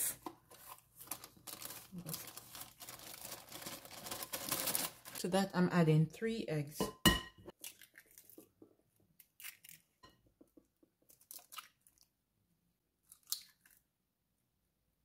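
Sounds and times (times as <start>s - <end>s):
eggshells cracking: 7.5s - 10.0s.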